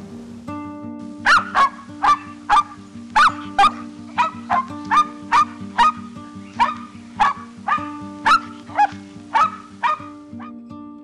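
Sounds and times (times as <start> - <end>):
background music: 0.0 - 11.0
dog barking: 1.2 - 6.0, 6.6 - 10.6.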